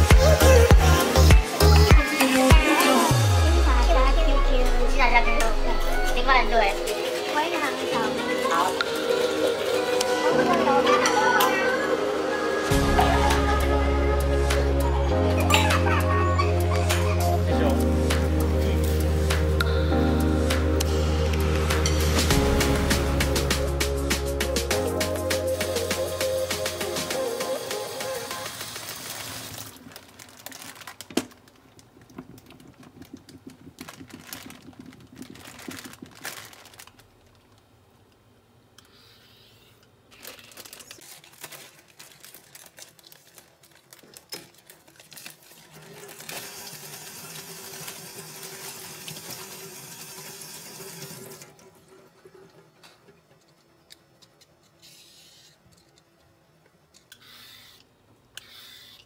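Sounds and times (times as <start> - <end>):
cucumber rinsed under tap: 45.6 - 51.5.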